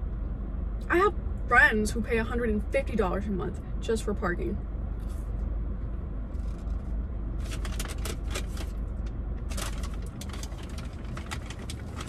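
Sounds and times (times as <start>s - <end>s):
steady low hum: 0.0s - 12.0s
paper bag rustling: 7.4s - 12.0s.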